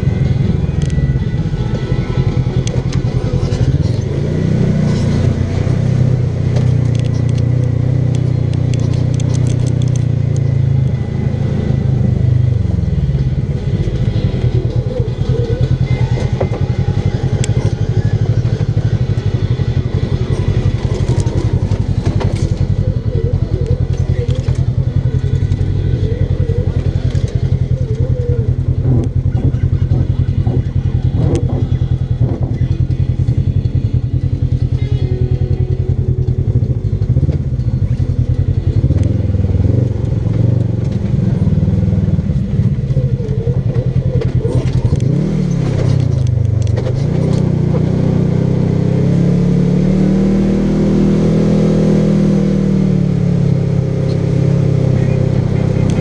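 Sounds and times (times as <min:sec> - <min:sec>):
engine running under load: 0:00.0 - 0:56.0
clicks and rattles: 0:06.5 - 0:10.5.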